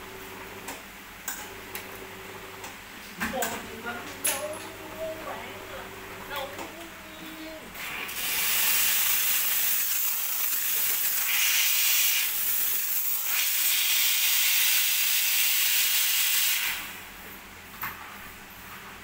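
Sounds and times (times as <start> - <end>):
espresso machine steam hissing: 7.8 - 17.0.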